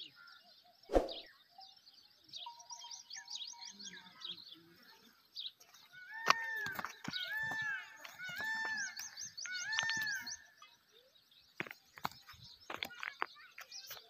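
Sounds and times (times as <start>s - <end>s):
small birds chirping: 0.0s - 14.0s
rising and falling bird call: 0.9s - 1.3s.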